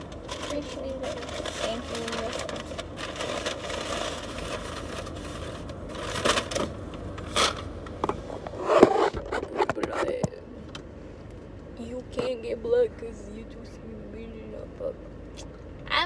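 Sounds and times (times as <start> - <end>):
rustling and scraping handling: 0.0 - 10.4.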